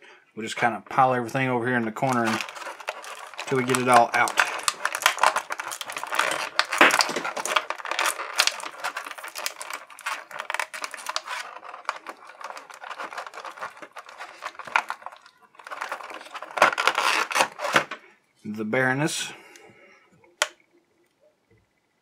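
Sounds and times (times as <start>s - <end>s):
plastic tray crackling and clicking: 2.0s - 18.0s.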